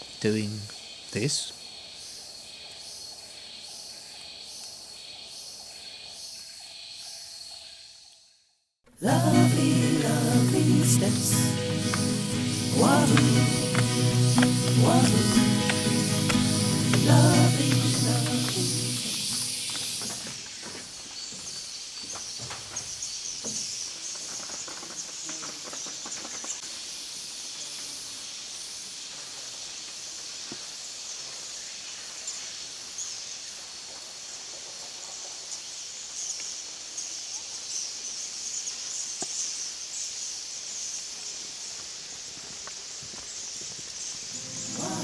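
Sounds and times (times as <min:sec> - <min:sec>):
insects chirring: 0:00.0 - 0:45.0
birds calling: 0:09.1 - 0:26.6, 0:44.1 - 0:45.0.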